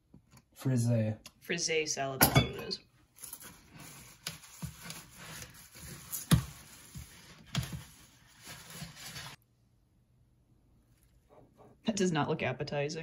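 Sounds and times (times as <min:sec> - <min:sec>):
lettuce leaves rustling: 0:03.7 - 0:09.4.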